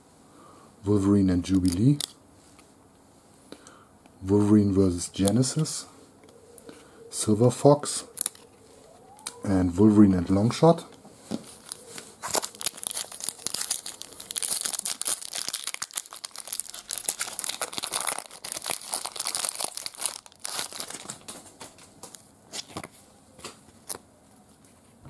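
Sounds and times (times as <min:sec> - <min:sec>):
foil wrapper tearing and crinkling: 0:08.1 - 0:08.5, 0:11.5 - 0:21.4.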